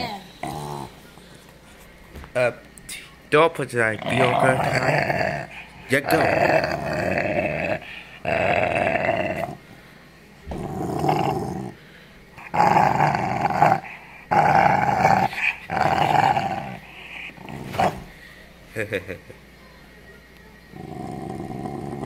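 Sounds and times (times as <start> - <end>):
puppy growling: 0.0 - 1.2, 3.8 - 9.7, 10.5 - 11.8, 12.4 - 18.2, 20.7 - 22.0.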